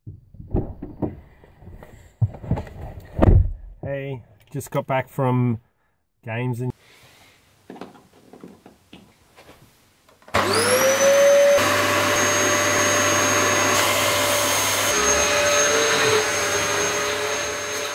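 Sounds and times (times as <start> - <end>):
vacuum cleaner motor whine: 10.3 - 17.9.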